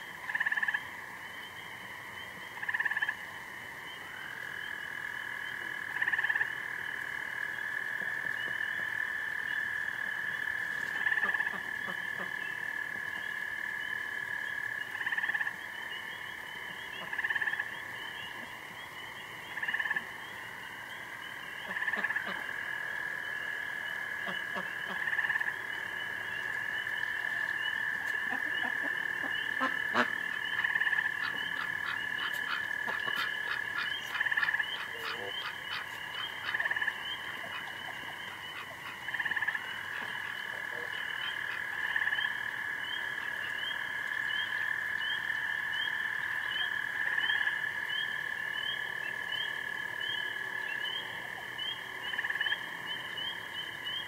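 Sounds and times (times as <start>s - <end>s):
frogs calling: 0.0s - 54.0s
rapid pulsed frog calls: 0.0s - 54.0s
rising frog peeps: 21.2s - 54.0s.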